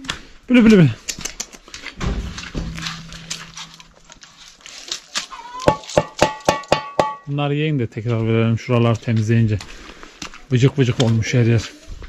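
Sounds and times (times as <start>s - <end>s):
chickens calling: 3.6s - 6.1s
chickens clucking: 5.1s - 6.1s.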